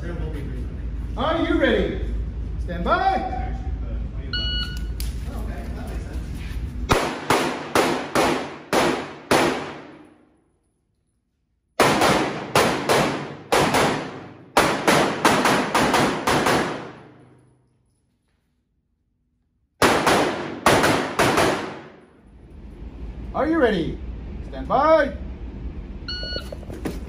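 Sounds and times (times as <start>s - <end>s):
handgun shots echoing indoors: 6.9s - 10.4s, 11.8s - 17.6s, 19.8s - 22.2s.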